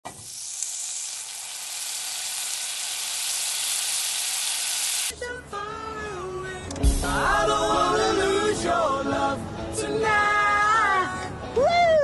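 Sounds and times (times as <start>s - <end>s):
food sizzling in a wok: 0.1s - 5.1s
music with singing: 5.1s - 12.0s.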